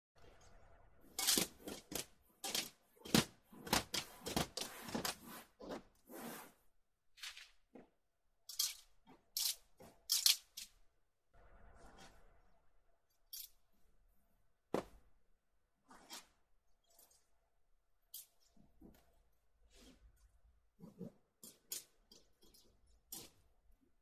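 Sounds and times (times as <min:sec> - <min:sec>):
metal scraping on cardboard: 0:01.2 - 0:06.6.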